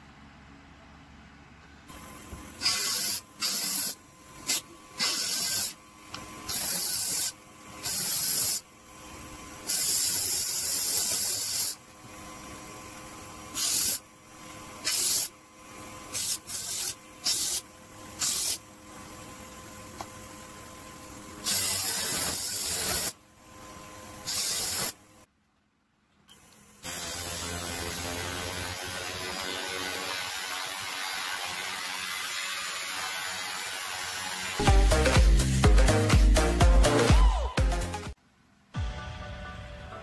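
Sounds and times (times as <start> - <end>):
small electric motor humming: 1.9 - 25.3, 26.3 - 34.6.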